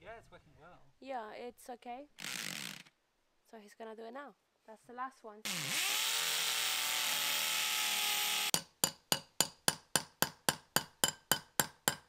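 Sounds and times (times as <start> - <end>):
power tool running: 5.5 - 8.6.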